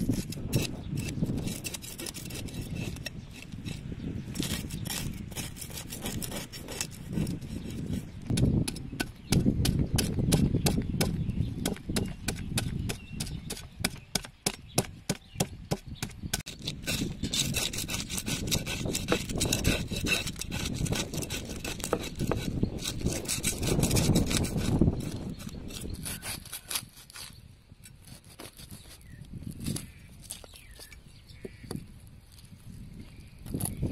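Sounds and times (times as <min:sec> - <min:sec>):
cleaver scraping fish scales: 0:00.0 - 0:09.1, 0:16.4 - 0:31.0.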